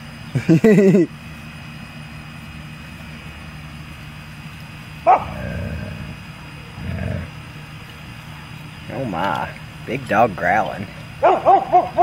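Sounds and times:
dog barking: 0:05.1 - 0:05.4, 0:11.2 - 0:12.0
dog growling: 0:05.1 - 0:07.4.

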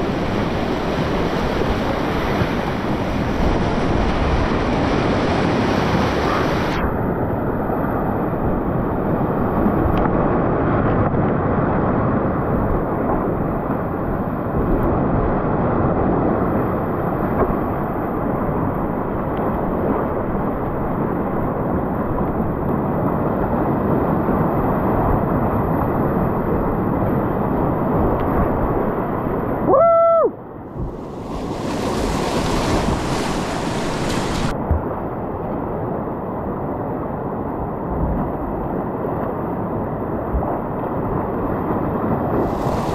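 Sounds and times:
whitewater rapids roaring: 0:00.0 - 0:06.8, 0:30.8 - 0:34.5, 0:42.3 - 0:42.9
wind noise: 0:00.0 - 0:29.7, 0:30.6 - 0:42.9.

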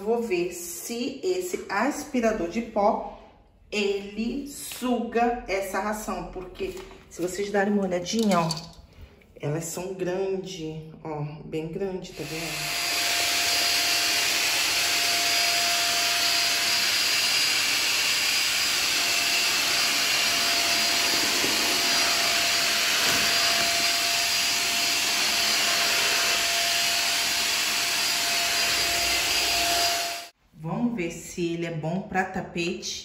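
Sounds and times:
vacuum cleaner running: 0:12.1 - 0:30.4.

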